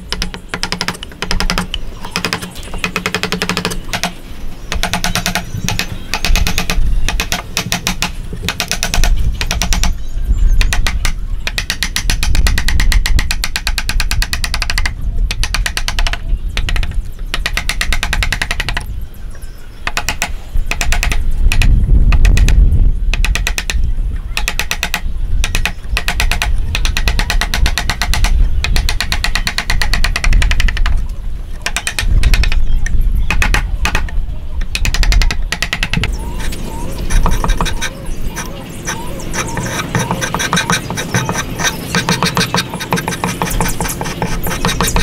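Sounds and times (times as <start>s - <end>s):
chisel scraping wood: 37.1s - 45.0s.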